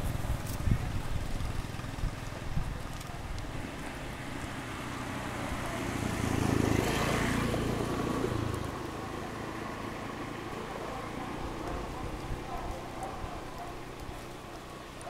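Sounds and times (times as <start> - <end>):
vehicle engine passing by: 3.5 - 14.9.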